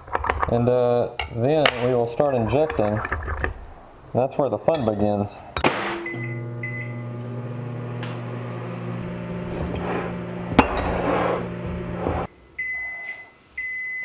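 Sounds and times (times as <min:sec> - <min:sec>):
microwave oven humming: 0:05.9 - 0:12.3
microwave end-of-cycle beep: 0:06.0 - 0:09.4, 0:12.6 - 0:14.0.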